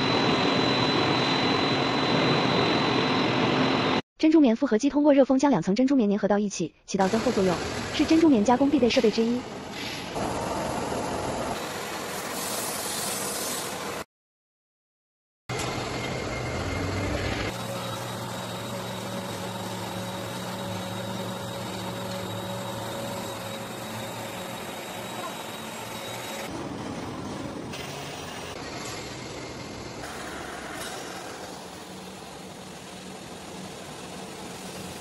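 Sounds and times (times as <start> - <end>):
laminating machine hum and hiss: 15.6 - 26.5.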